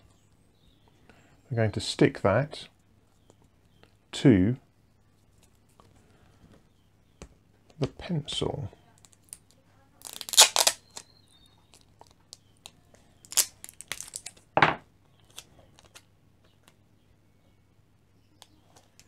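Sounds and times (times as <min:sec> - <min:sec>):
tape crinkling: 0:09.0 - 0:14.5, 0:15.2 - 0:16.1
sticky tape tearing: 0:10.0 - 0:11.0, 0:13.2 - 0:14.4.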